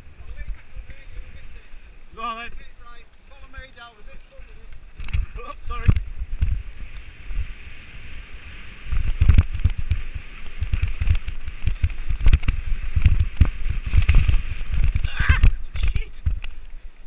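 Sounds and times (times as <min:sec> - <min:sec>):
wind on microphone: 0:00.0 - 0:02.8, 0:03.4 - 0:17.0
bike knocking and rattling: 0:08.9 - 0:16.6.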